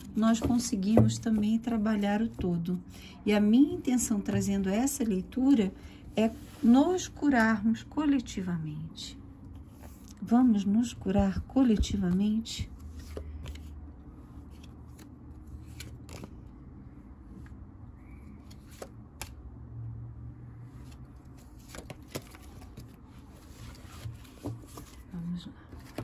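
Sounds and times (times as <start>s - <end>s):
low steady hum: 0.0s - 26.0s
cards being shuffled: 14.4s - 16.4s, 21.4s - 25.0s.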